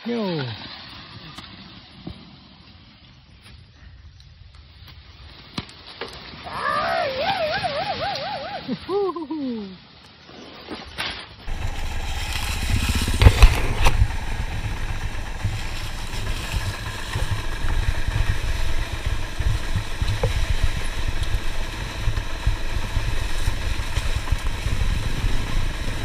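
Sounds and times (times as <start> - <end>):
bike rattling over bumps: 11.2 - 26.0
dirt bike engine running: 11.4 - 26.0.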